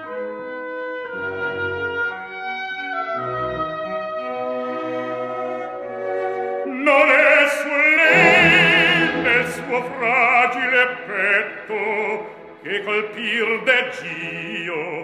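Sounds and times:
operatic baritone singing: 0:06.7 - 0:15.0
orchestra holding a chord: 0:08.0 - 0:11.4.

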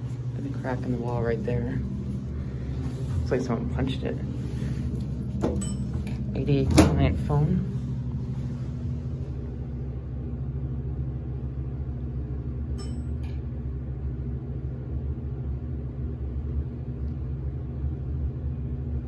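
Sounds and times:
elevator hum and rumble: 0:00.0 - 0:19.0.

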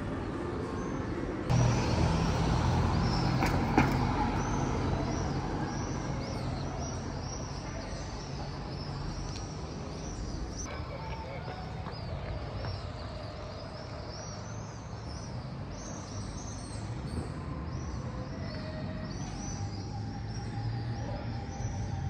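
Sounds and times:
vehicle engine running: 0:01.5 - 0:05.2.

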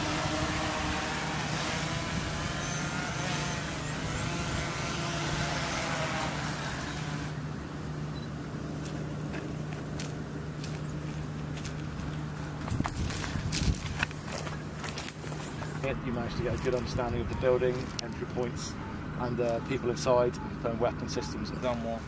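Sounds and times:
drone propellers buzzing: 0:00.0 - 0:08.4.

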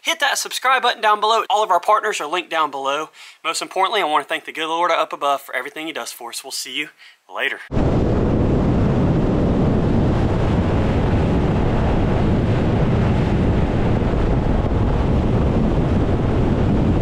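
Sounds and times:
wind buffeting microphone: 0:07.7 - 0:17.0.

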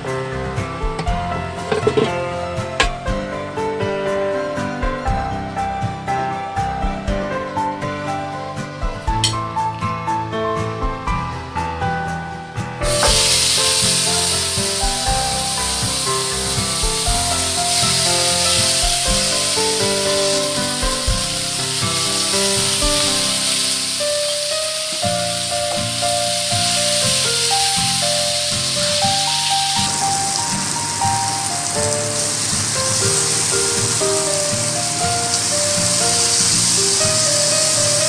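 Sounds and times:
background music: 0:00.0 - 0:38.0
meat sizzling on grill pan: 0:12.8 - 0:38.0.

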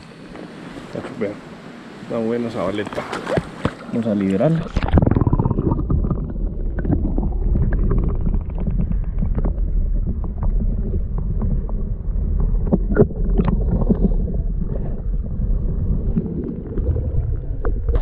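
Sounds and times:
muffled underwater stream rumble: 0:04.6 - 0:18.0.

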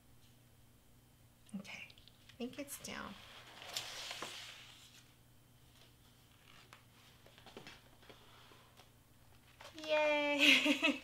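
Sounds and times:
papery rustle: 0:03.1 - 0:05.1.

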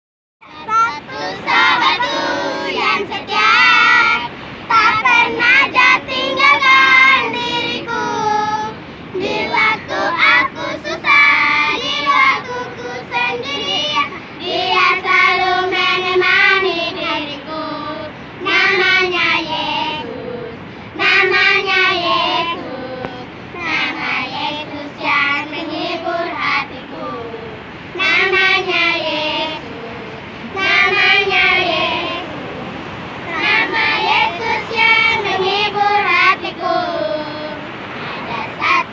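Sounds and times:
girls singing in chorus: 0:00.5 - 0:38.9.

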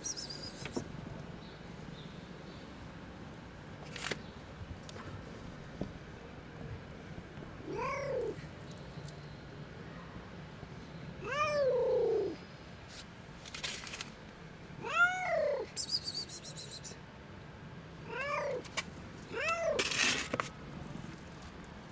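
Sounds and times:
cat meowing: 0:18.1 - 0:18.6.

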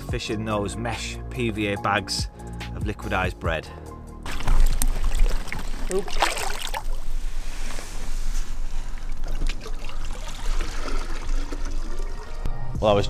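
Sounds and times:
water splashing and trickling: 0:04.2 - 0:07.3, 0:08.8 - 0:12.5
fish splashing: 0:04.3 - 0:07.3.

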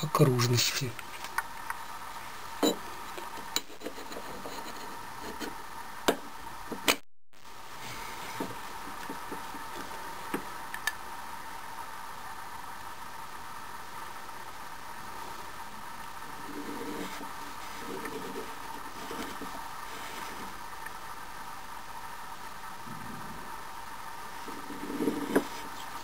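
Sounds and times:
faint hum: 0:00.0 - 0:26.0.

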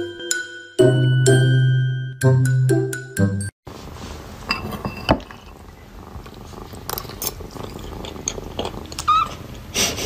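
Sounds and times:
kitten purring: 0:05.8 - 0:09.3.

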